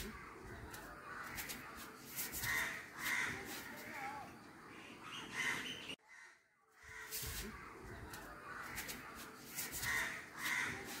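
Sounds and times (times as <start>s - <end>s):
crows cawing: 2.2s - 3.8s, 5.2s - 7.6s, 9.6s - 11.0s.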